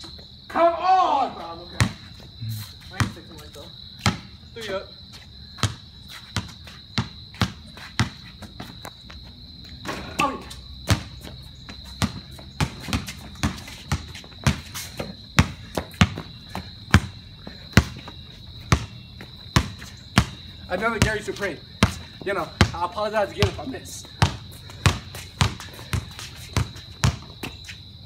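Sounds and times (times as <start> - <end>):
insects chirring: 0.0 - 28.0
person shouting: 0.5 - 1.4, 10.1 - 10.5
basketball bouncing on concrete: 1.8 - 3.4, 4.0 - 4.4, 5.5 - 27.7.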